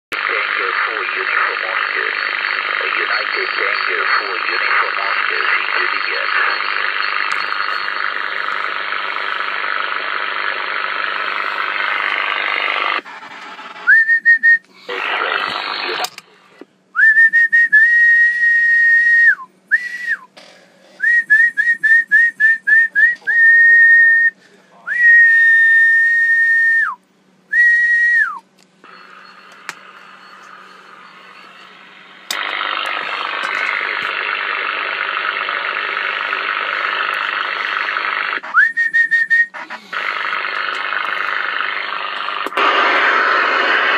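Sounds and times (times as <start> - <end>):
radio speaker hiss: 0.1 - 16.7, 22.0 - 25.0, 28.8 - 43.9
person whistling steady notes: 13.8 - 14.8, 17.0 - 20.3, 21.0 - 28.4, 38.5 - 39.6.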